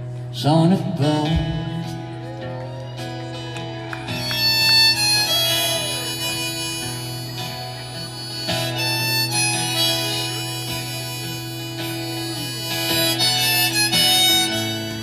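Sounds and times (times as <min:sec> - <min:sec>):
bass: 0:00.0 - 0:15.0
keyboard: 0:00.0 - 0:15.0
strummed acoustic guitar: 0:00.0 - 0:15.0
drums: 0:01.2 - 0:02.0
harmonica melody: 0:03.3 - 0:15.0.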